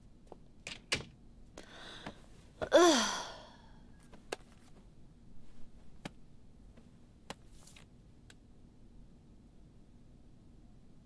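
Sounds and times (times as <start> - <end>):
soft rustle of papers: 3.8 - 8.4.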